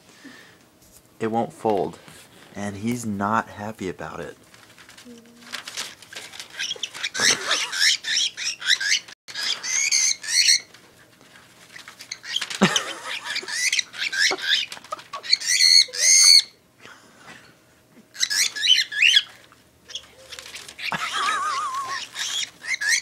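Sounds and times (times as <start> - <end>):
newspaper rustling: 4.4 - 7.3, 10.7 - 13.3, 19.3 - 22.7
cockatiel squawking: 6.5 - 10.7, 12.1 - 16.6, 18.2 - 19.3, 19.9 - 23.0.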